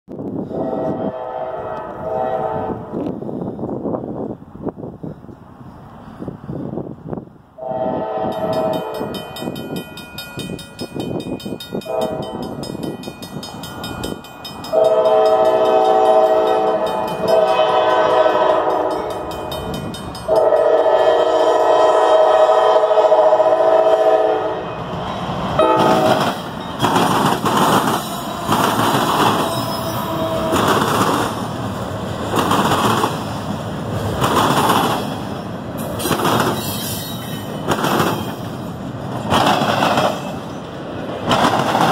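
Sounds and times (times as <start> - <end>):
locomotive air horn blasts: 0.4 - 3.1, 7.6 - 9.1, 11.8 - 12.4, 14.7 - 19.2, 20.3 - 24.8, 25.6 - 26.3, 28.1 - 30.8
train wheels clattering over rails: 8.3 - 21.1, 25.6 - 41.9.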